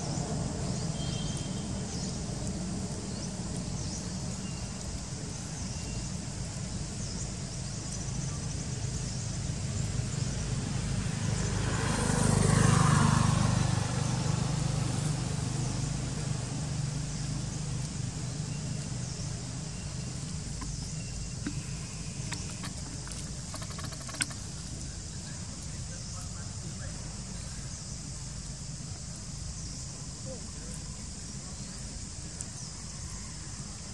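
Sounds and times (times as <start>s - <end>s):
vehicle passing by: 9.4s - 20.6s.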